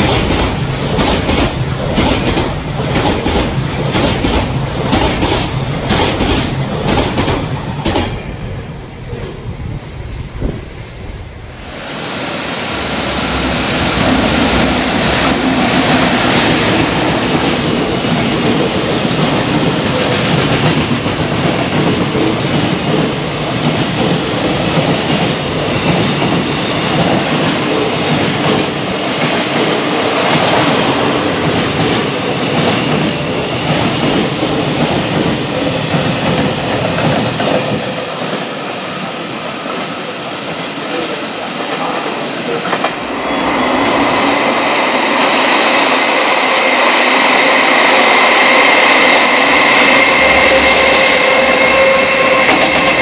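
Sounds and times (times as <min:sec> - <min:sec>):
clickety-clack over rail joints: 0:00.0 - 0:08.4, 0:17.0 - 0:43.1, 0:51.7 - 0:53.0
train wheels rumbling on rail: 0:00.0 - 0:53.0.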